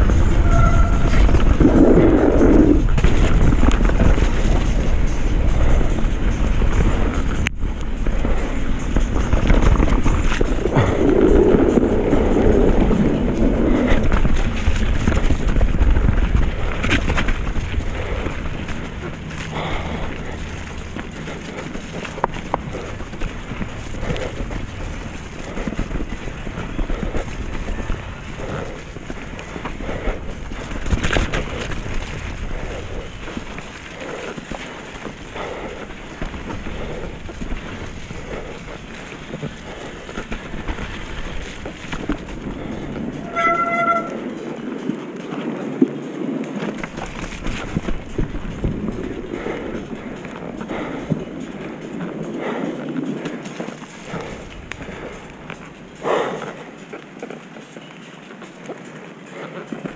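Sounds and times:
wind buffeting microphone: 0:00.0 - 0:57.6
bike chain and frame rattling: 0:00.0 - 0:59.9
bike tyres running through mud: 0:00.0 - 0:59.9
short high squeal: 0:00.3 - 0:01.3.

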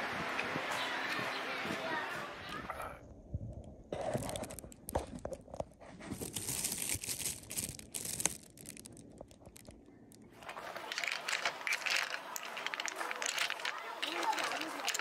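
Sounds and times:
crinkling handling noise: 0:03.6 - 0:15.0.

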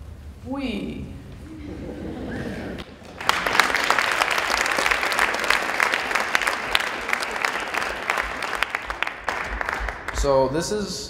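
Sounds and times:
audience applause: 0:02.5 - 0:10.4.

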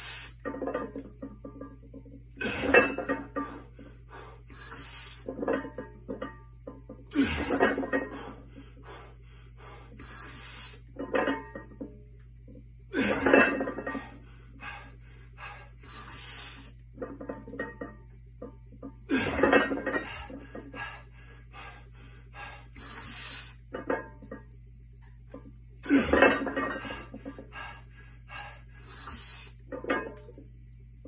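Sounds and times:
person breathing hard: 0:08.1 - 0:10.8, 0:14.0 - 0:16.8, 0:20.1 - 0:23.6, 0:26.8 - 0:29.6.

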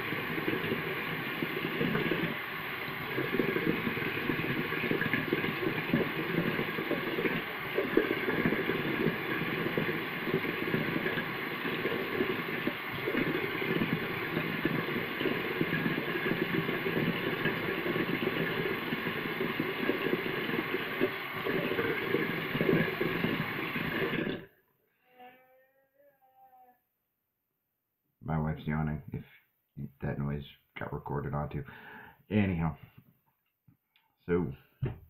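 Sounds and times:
water running from tap: 0:00.0 - 0:24.5.

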